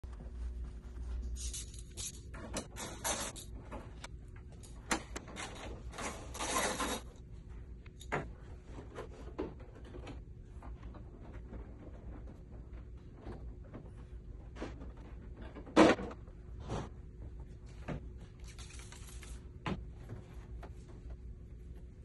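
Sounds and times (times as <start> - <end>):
vinyl sheets rustling and rubbing: 18.2 - 19.5.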